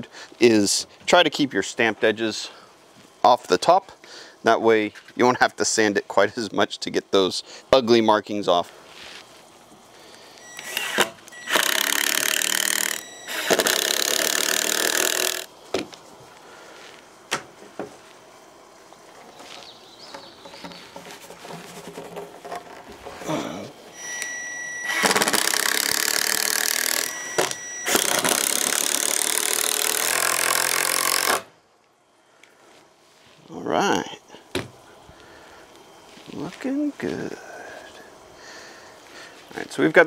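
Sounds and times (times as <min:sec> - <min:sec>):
cordless drill driving screws: 0:10.4 - 0:15.5, 0:24.0 - 0:31.5
handling knocks and clicks: 0:19.1 - 0:23.3.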